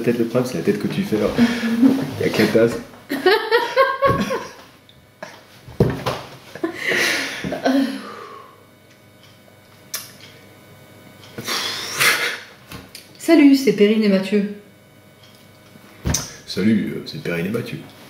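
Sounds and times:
man and woman laughing: 1.4s - 2.2s, 3.1s - 4.7s, 6.5s - 8.1s.

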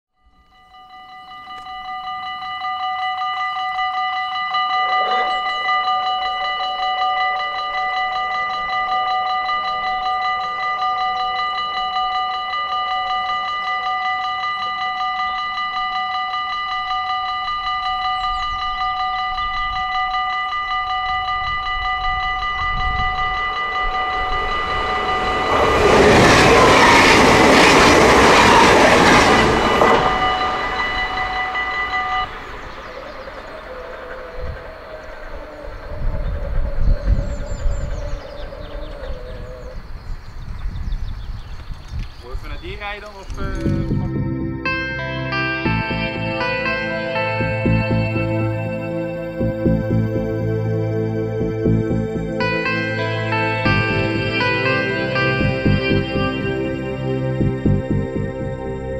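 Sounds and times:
level crossing warning bell: 0.2s - 40.0s, 42.6s - 58.9s
loud rushing noise: 23.4s - 34.1s.

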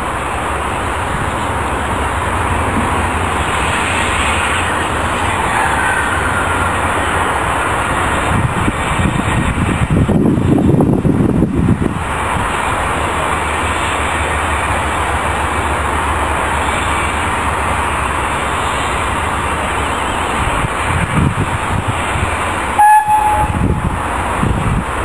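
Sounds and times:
steady steam hiss: 0.0s - 25.0s
steam locomotive whistle toot: 5.2s - 6.8s, 22.8s - 23.9s.

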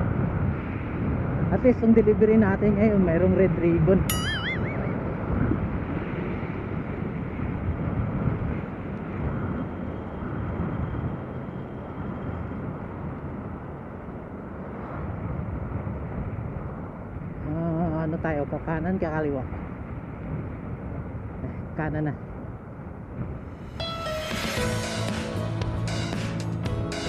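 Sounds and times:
wind and road noise: 0.0s - 27.0s.

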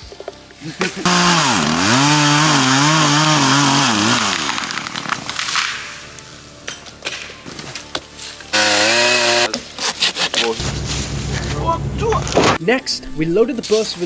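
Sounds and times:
chainsaw cutting wood: 1.0s - 5.7s, 8.5s - 10.1s.

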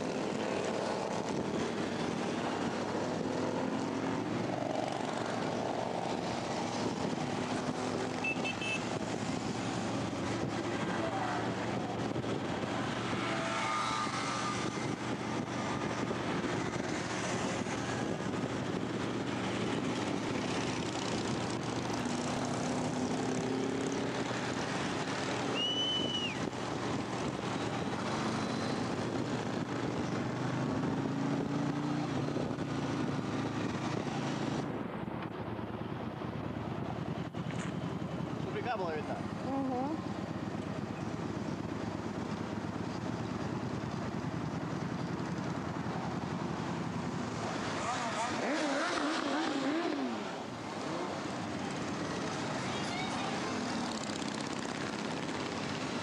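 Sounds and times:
motorcycle engines running: 0.0s - 56.0s
wind noise: 4.1s - 38.1s
short high beep: 8.2s - 8.8s.

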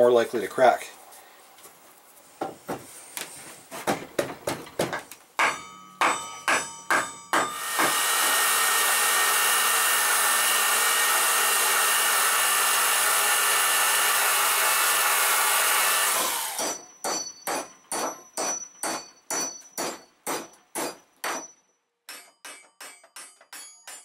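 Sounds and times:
sharp ringing taps: 5.4s - 7.6s, 16.6s - 24.0s
power drill boring: 7.6s - 16.9s.

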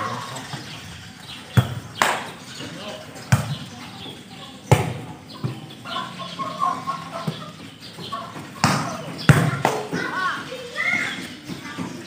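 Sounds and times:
volleyball slaps: 1.6s - 2.3s, 4.7s - 5.1s, 8.6s - 10.0s.

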